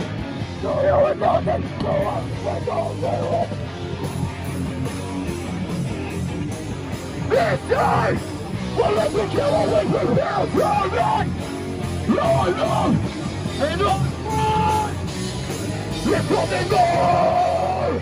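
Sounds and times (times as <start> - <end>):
punk band playing live: 0.0 - 18.0
vocalist yelling: 0.6 - 3.6, 7.3 - 11.4, 12.0 - 15.1, 16.0 - 18.0.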